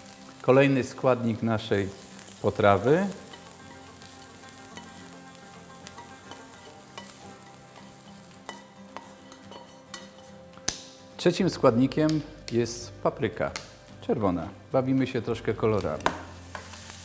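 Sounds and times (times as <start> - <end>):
onion sizzling in a frying pan: 0.0 - 17.0
utensil scraping a pan: 5.9 - 10.4.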